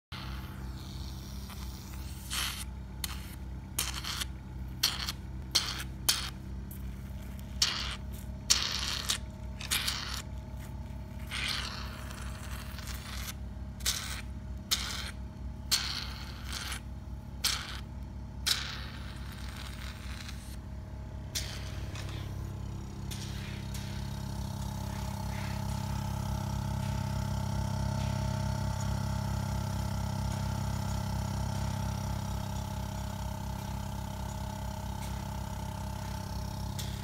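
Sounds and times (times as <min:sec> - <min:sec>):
steady low hum: 0:00.1 - 0:37.0
short hissing scraping bursts: 0:00.2 - 0:05.8, 0:24.7 - 0:26.1.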